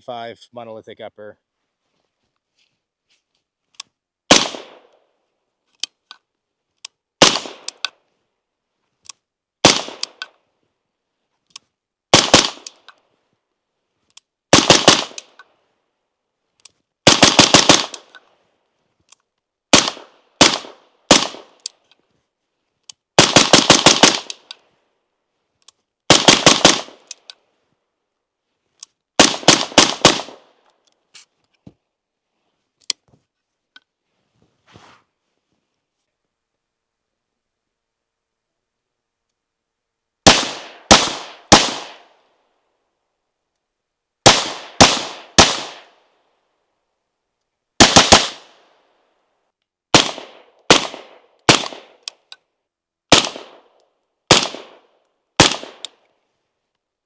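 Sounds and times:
gunshot echo: 4.3s - 4.9s, 47.8s - 48.5s
suppressed rifle shots: 4.3s - 5.0s, 7.2s - 7.9s, 9.6s - 10.3s, 12.1s - 12.9s, 14.5s - 15.4s, 17.0s - 18.2s, 19.7s - 21.7s, 23.2s - 24.5s, 26.1s - 27.2s, 29.2s - 30.6s, 40.2s - 42.1s, 44.2s - 46.0s, 47.8s - 48.6s, 49.9s - 52.1s, 53.1s - 56.0s.

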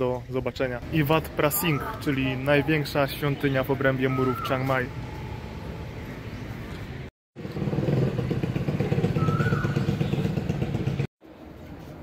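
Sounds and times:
motorcycle engine running: 7.4s - 11.1s.

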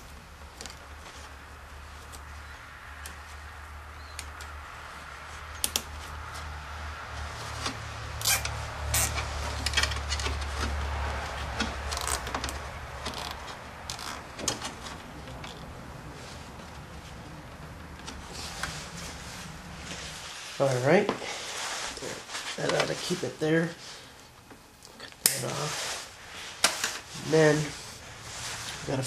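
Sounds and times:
rustling plastic and wire: 0.0s - 20.8s, 24.5s - 29.0s
zip tie clicking: 8.2s - 9.2s.

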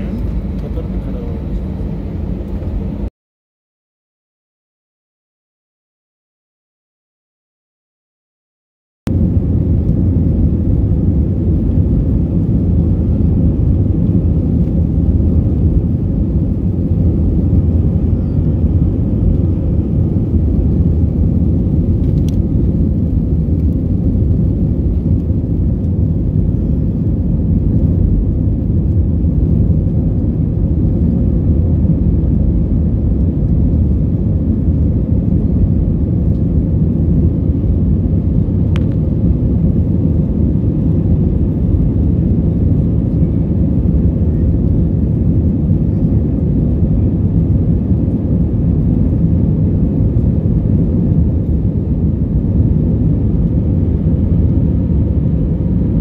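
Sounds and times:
faint steady hum: 0.0s - 3.1s
jet engine rumble in cabin: 0.0s - 3.1s, 9.1s - 56.0s.

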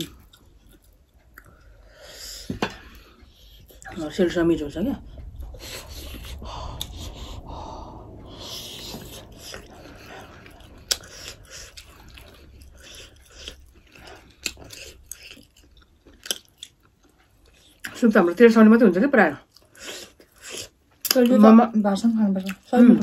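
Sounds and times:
close chewing with mouth smacks: 0.0s - 1.8s, 9.3s - 18.1s, 19.4s - 21.5s, 22.2s - 23.0s.

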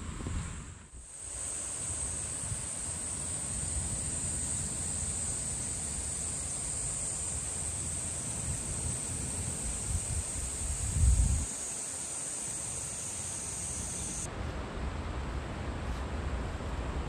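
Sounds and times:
wind rumble on microphone: 0.0s - 1.0s, 9.6s - 11.5s
cicadas singing: 1.0s - 14.3s.

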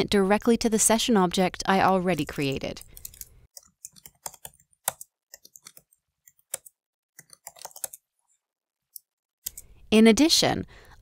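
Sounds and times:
typing on a computer keyboard: 2.8s - 8.0s, 9.4s - 9.7s.

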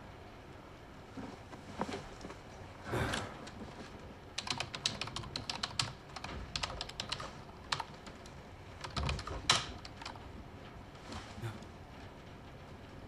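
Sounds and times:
typing on computer keyboard: 4.4s - 10.2s.

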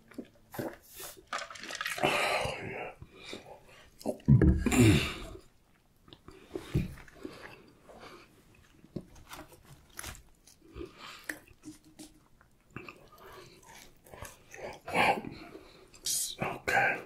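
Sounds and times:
chewing fried food: 5.6s - 14.9s.

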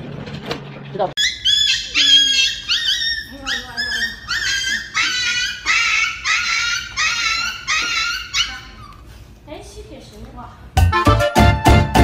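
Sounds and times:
dog yelping and crying: 1.2s - 9.1s.

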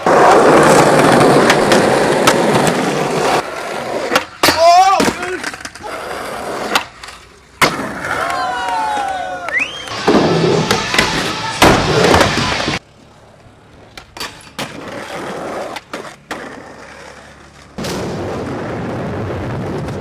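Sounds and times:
skateboard clacks: 0.0s - 6.0s
skateboard wheels rolling on concrete: 0.0s - 20.0s.

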